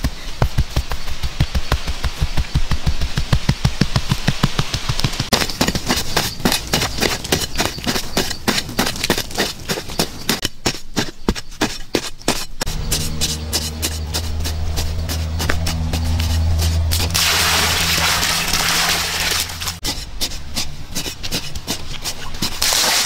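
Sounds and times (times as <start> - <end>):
wooden pole tamping sand: 0.0 - 23.0
wooden stick striking soil: 0.0 - 23.0
steady low hum: 12.6 - 21.8.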